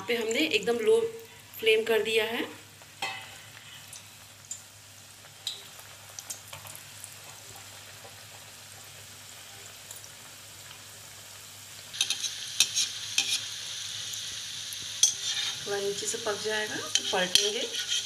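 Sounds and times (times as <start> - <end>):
deep-frying sizzle with pops: 0.0 - 18.0
metal spoon scraping pan: 12.0 - 13.5, 15.0 - 18.0.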